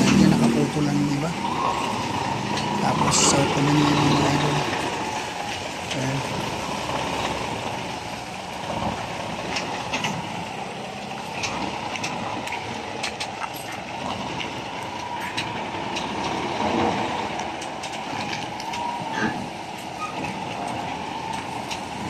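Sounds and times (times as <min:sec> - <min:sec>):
truck diesel engine running: 0:00.0 - 0:22.0
sharp clicks and knocks: 0:11.2 - 0:22.0.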